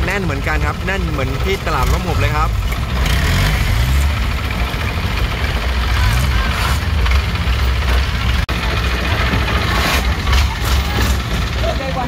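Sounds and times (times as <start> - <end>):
boat engine running: 0.0 - 12.0
crowd voices: 4.4 - 12.0.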